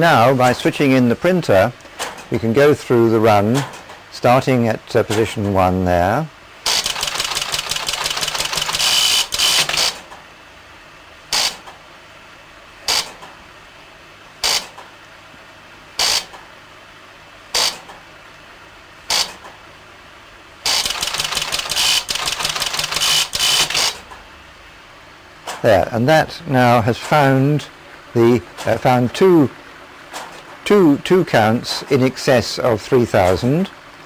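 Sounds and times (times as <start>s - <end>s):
electric typewriter clattering: 6.6s - 10.2s, 20.7s - 24.0s
machine running noise: 6.6s - 10.2s, 20.6s - 24.2s.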